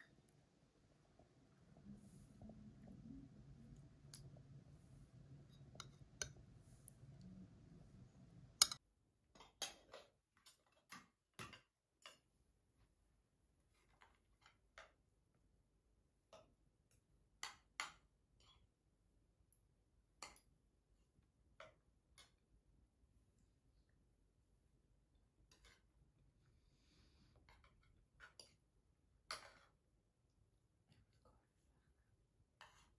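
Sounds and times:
faint low hum: 0:00.0 - 0:09.2.

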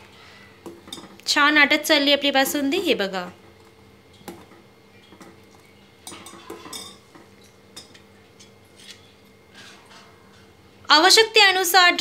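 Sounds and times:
ladle scraping and clinking pot: 0:04.4 - 0:10.6.

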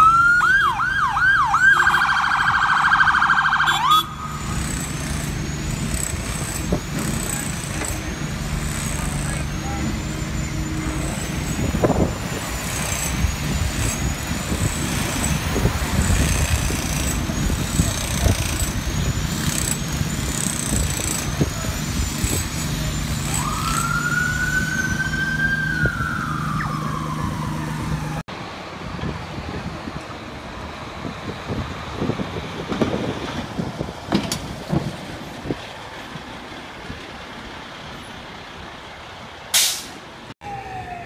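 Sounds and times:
ambulance siren: 0:00.0 - 0:04.6, 0:23.1 - 0:28.3, 0:40.4 - 0:41.0
idling city traffic rumble: 0:00.0 - 0:41.0
wind: 0:00.0 - 0:41.0.

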